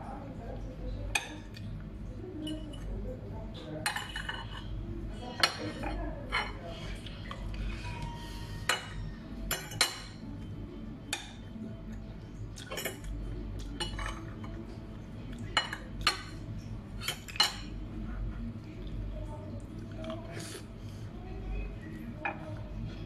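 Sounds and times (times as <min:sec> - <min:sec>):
cutlery clinking on ceramic plates: 0:03.8 - 0:04.7, 0:07.8 - 0:10.2, 0:13.8 - 0:14.6.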